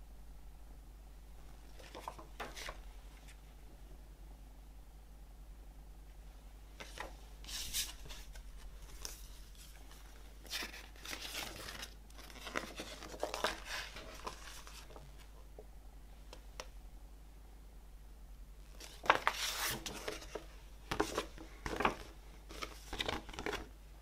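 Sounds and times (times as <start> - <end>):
paper rustling and crackling: 1.7 - 3.4, 6.8 - 15.3, 18.8 - 23.7.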